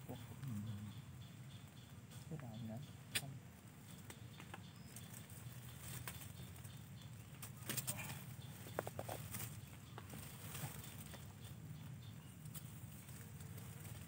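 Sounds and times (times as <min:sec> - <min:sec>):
sharp clicks: 0:03.1 - 0:03.3
dry grass and leaves rustling: 0:03.5 - 0:14.0.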